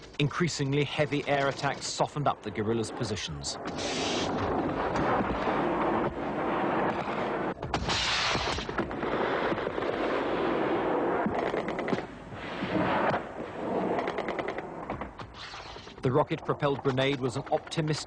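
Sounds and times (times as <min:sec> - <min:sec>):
heavy blasts: 0:00.7 - 0:17.1
rapid gunfire: 0:03.6 - 0:17.7.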